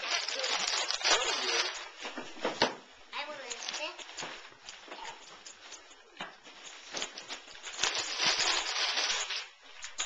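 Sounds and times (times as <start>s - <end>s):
wrapping paper tearing and crinkling: 0.0s - 2.2s, 3.2s - 10.0s.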